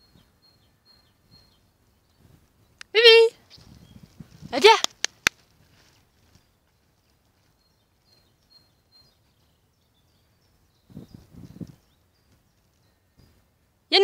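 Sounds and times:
sharp clicks: 0:04.6 - 0:05.4.

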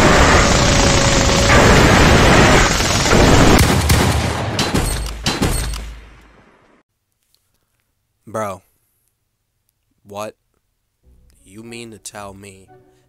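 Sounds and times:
loud dense rush: 0:00.0 - 0:03.7
gunshots and impacts: 0:00.0 - 0:06.6.

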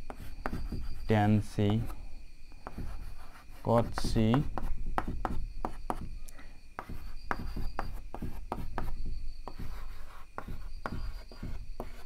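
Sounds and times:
chalk writing on a blackboard: 0:00.0 - 0:02.0, 0:02.6 - 0:06.2, 0:06.8 - 0:12.0.

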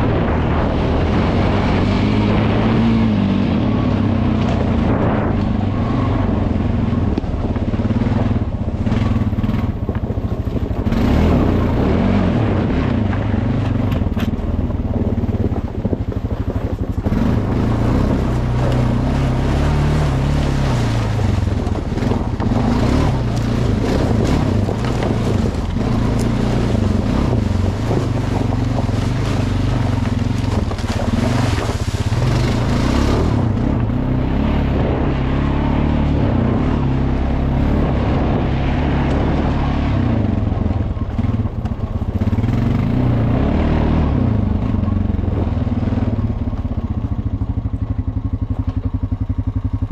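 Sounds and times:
atv engine revving: 0:00.0 - 0:49.9
tyres through dry leaves: 0:13.3 - 0:34.9.

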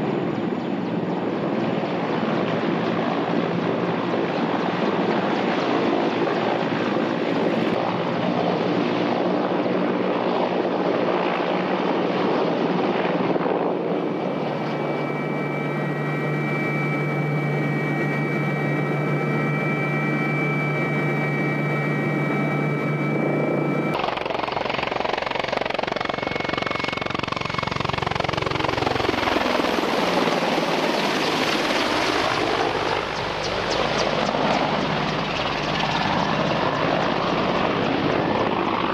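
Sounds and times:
helicopter rotor and engine noise: 0:00.0 - 0:38.9
turbine whine: 0:12.9 - 0:37.6.

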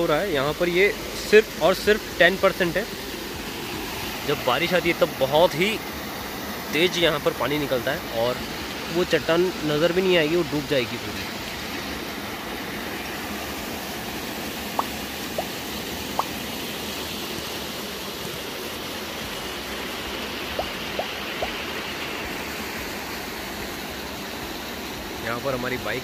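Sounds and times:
water rushing over weir: 0:00.0 - 0:26.0.

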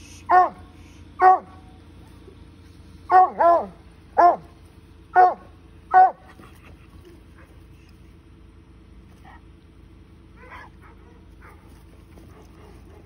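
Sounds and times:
dog barking: 0:00.3 - 0:00.6, 0:01.2 - 0:01.6, 0:03.1 - 0:04.5, 0:05.1 - 0:06.3, 0:10.4 - 0:11.7.

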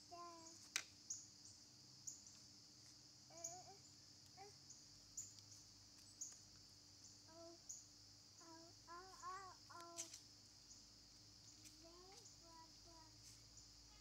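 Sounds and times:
young child's faint vocal sounds: 0:00.0 - 0:00.6, 0:03.3 - 0:04.6, 0:07.3 - 0:07.7, 0:08.4 - 0:10.2, 0:11.8 - 0:14.0
insects droning: 0:00.0 - 0:14.0
faint chirps: 0:03.3 - 0:14.0.

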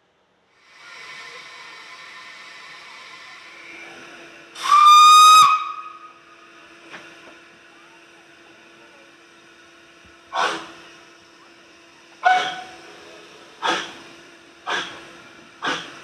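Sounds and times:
steam locomotive whistle: 0:04.6 - 0:06.3, 0:12.2 - 0:12.8
steam exhaust chuff: 0:10.3 - 0:11.1, 0:12.2 - 0:16.0.

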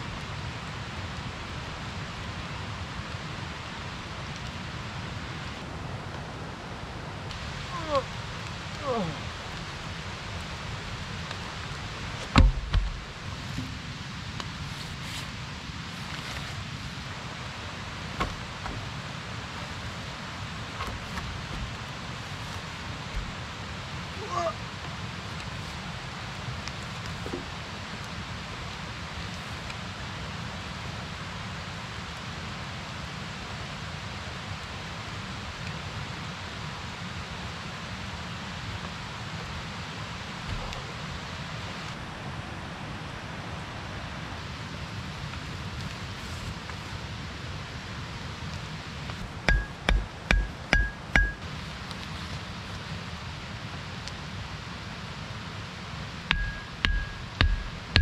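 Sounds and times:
steady rain hiss: 0:00.0 - 0:58.0
tool striking with metallic ring: 0:49.5 - 0:51.4, 0:56.3 - 0:58.0.

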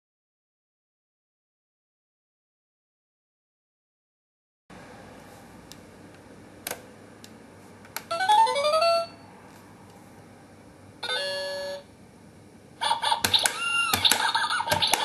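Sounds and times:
toy clicks: 0:13.1 - 0:15.0.

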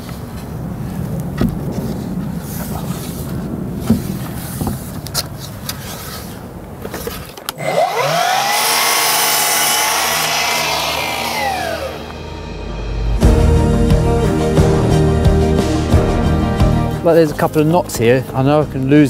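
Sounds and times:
mitre saw cutting wood: 0:07.6 - 0:12.3.

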